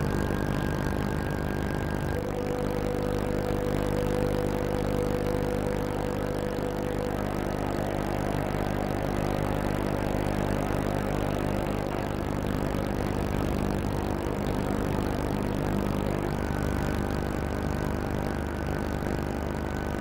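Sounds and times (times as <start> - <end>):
boat engine droning: 0.0 - 20.0
higher hum: 0.0 - 20.0.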